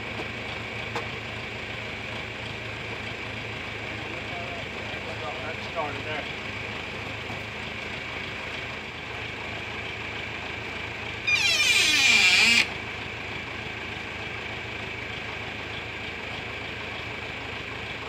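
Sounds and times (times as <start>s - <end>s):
tractor engine idling: 0.0s - 18.0s
high-pitched wavering squeal: 11.3s - 12.7s.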